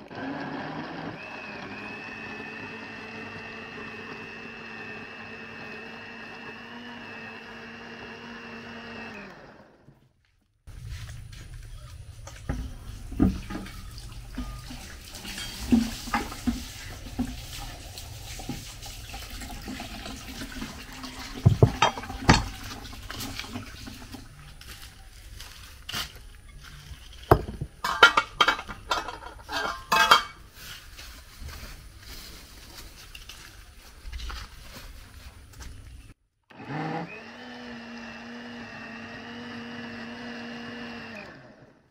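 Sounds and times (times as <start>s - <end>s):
kitchenware knocking and clattering: 12.5s - 17.4s, 21.3s - 23.1s, 27.3s - 30.4s
liquid sloshing and splashing: 12.8s - 24.5s.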